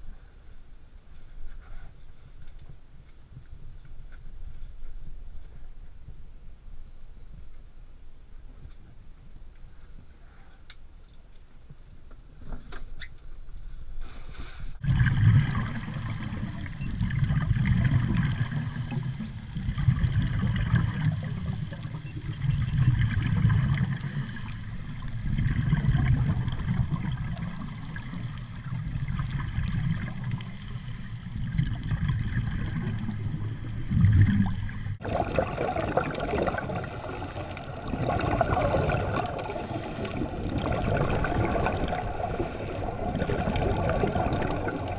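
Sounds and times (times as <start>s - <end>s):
muffled underwater rumble: 13.4s - 44.9s
divers' bubbles gurgling: 14.8s - 44.9s.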